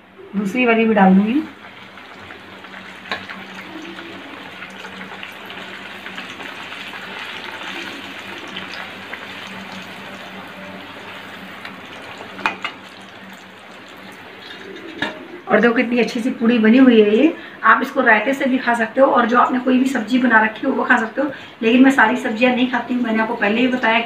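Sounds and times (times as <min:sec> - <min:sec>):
dough sizzling in hot oil: 0:01.2 - 0:15.3.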